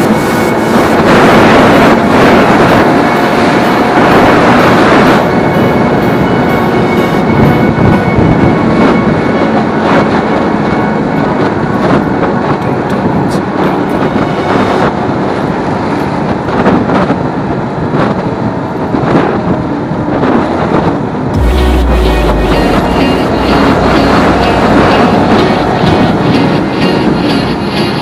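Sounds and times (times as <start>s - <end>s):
motorcycle engine cruising: 0.0s - 12.4s, 21.4s - 28.0s
deep wind buffeting: 0.0s - 28.0s
wind noise on microphone: 0.0s - 28.0s.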